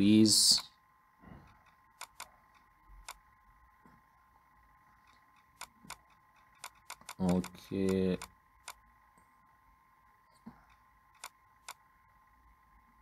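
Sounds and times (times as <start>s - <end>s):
computer mouse clicks: 1.4s - 3.4s, 4.9s - 8.8s, 10.3s - 11.9s.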